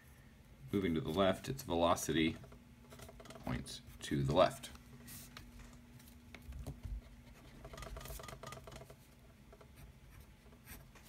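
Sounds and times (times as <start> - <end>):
pencil scratching on paper: 9.7 - 11.0.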